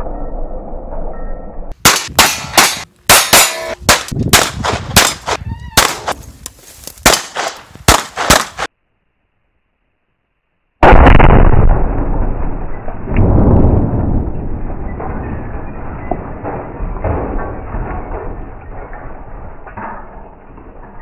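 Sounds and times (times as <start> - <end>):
handgun shots: 1.9 - 6.2, 7.0 - 8.7.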